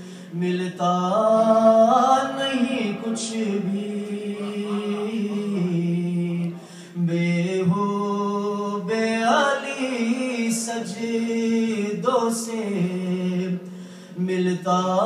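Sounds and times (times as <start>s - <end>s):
man singing unaccompanied: 0.3s - 15.0s.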